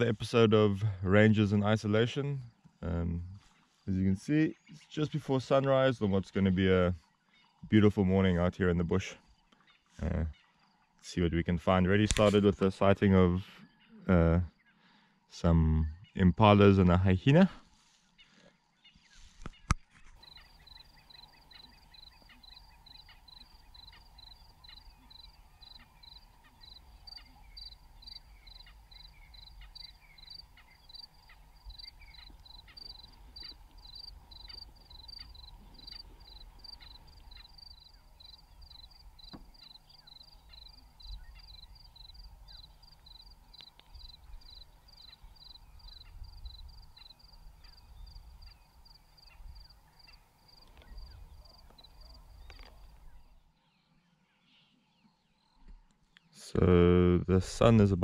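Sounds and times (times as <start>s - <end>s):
insect chirping: 20.2s - 53.4s.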